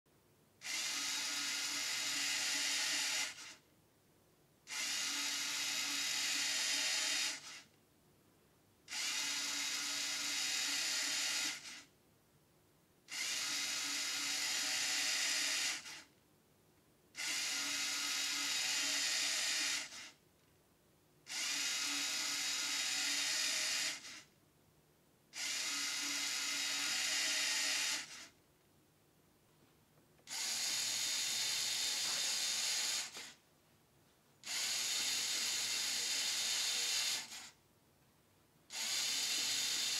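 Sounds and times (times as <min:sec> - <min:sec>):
motor whirring plastic gears: 0:00.6 - 0:03.6, 0:04.7 - 0:07.7, 0:08.9 - 0:11.9, 0:13.1 - 0:16.1, 0:17.2 - 0:20.2, 0:21.3 - 0:24.3, 0:25.4 - 0:28.4, 0:30.3 - 0:33.4, 0:34.4 - 0:37.6, 0:38.7 - 0:39.9.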